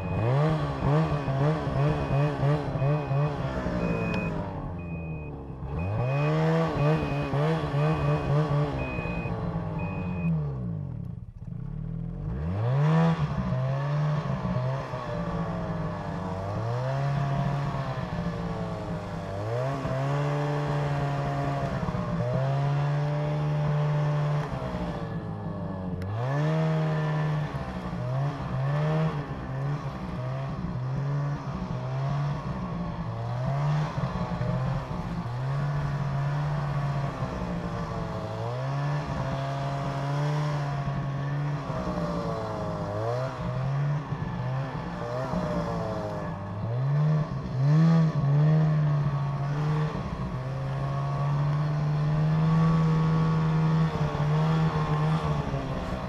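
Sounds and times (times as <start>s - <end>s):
high electronic beep: 0.0s - 10.4s
snowmobile engine revving: 0.0s - 10.8s, 11.6s - 56.0s.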